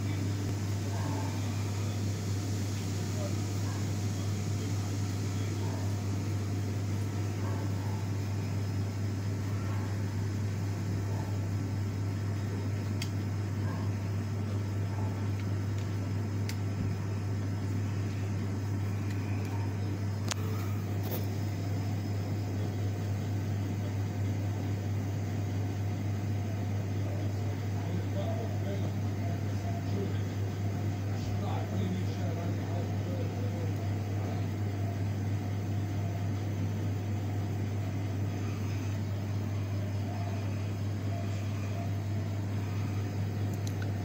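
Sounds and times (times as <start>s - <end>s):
small machine humming: 0.0s - 44.0s
faint clicks: 43.5s - 44.0s.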